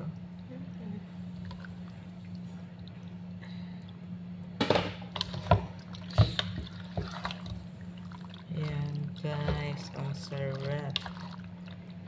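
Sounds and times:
steady low hum: 0:00.0 - 0:12.0
spoon stirring thick sauce: 0:05.1 - 0:12.0.

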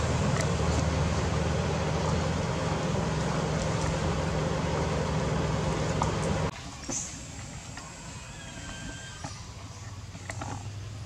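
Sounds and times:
low engine hum: 0:00.0 - 0:06.6.

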